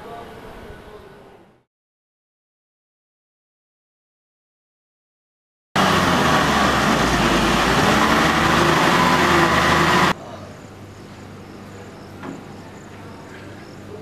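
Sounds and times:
faint outdoor background: 0:00.0 - 0:01.7, 0:06.6 - 0:14.0
diesel truck engine running: 0:05.8 - 0:10.2.

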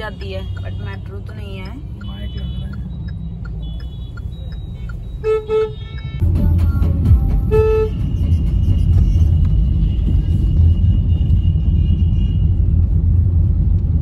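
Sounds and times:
low traffic rumble inside car: 0:00.0 - 0:14.0
vehicle horns honking: 0:02.0 - 0:02.9, 0:03.6 - 0:06.2, 0:07.4 - 0:12.6.

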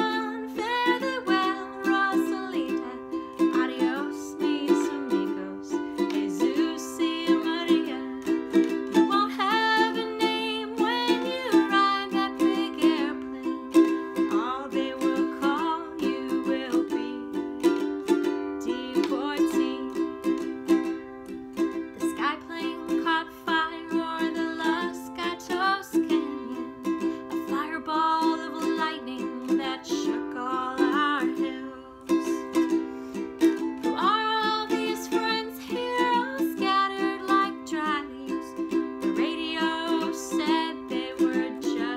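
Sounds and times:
ukulele strumming: 0:00.0 - 0:41.9.

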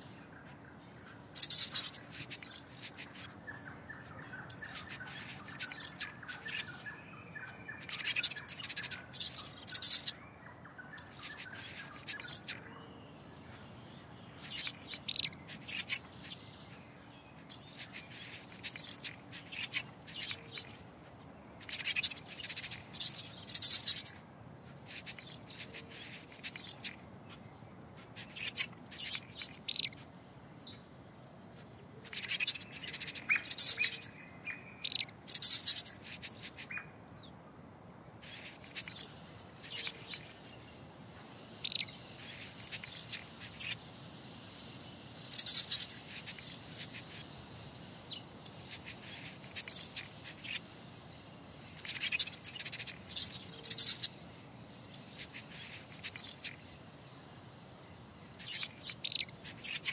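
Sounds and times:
mouse squeaks: 0:01.3 - 0:03.3, 0:04.4 - 0:06.7, 0:07.4 - 0:10.2, 0:11.0 - 0:12.7, 0:14.4 - 0:16.4, 0:17.4 - 0:20.8, 0:21.6 - 0:24.2, 0:24.8 - 0:27.0, 0:28.1 - 0:30.0, 0:32.0 - 0:36.8, 0:38.2 - 0:40.4, 0:41.6 - 0:43.8, 0:45.3 - 0:47.3, 0:48.1 - 0:50.6, 0:51.7 - 0:54.1, 0:54.9 - 0:56.6, 0:58.3 - 0:59.9.

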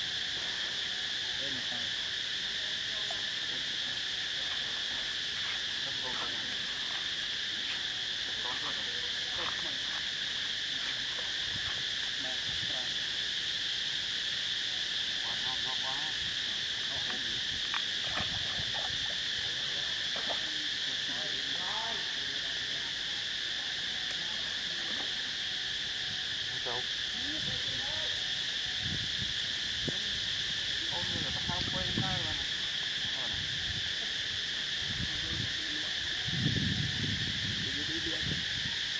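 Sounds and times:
insect chorus drone: 0:00.0 - 0:38.9.

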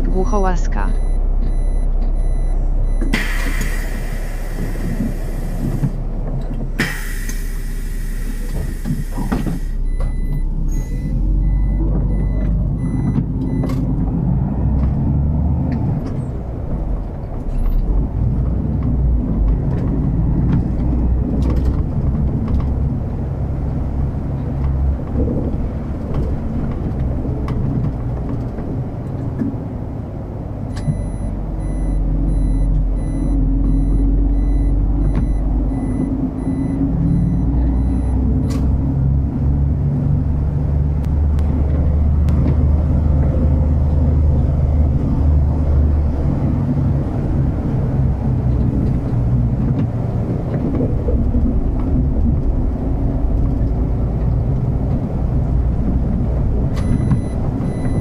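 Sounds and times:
bus engine and road noise: 0:00.0 - 0:58.0
high electronic beep: 0:00.1 - 0:03.1, 0:30.8 - 0:38.2, 0:56.8 - 0:58.0.

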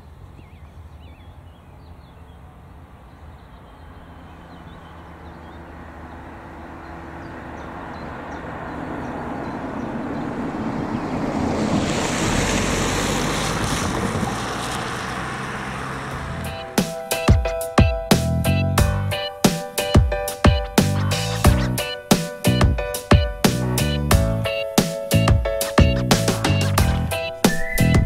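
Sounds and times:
car tyre and engine noise: 0:00.0 - 0:17.3, 0:23.5 - 0:28.0.

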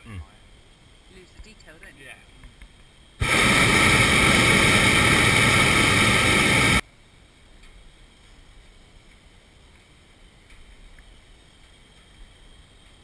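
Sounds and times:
propane burner blast: 0:03.2 - 0:06.8.

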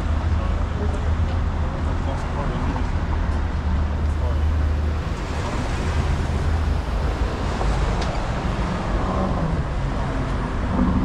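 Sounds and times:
cars driving past: 0:00.0 - 0:11.0
deep engine rumble: 0:00.0 - 0:11.0.

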